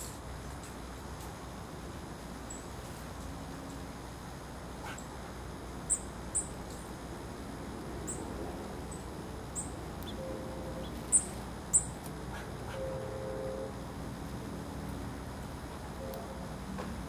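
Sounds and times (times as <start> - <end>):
songbirds high chip calls: 5.9 - 6.8, 8.1 - 13.2.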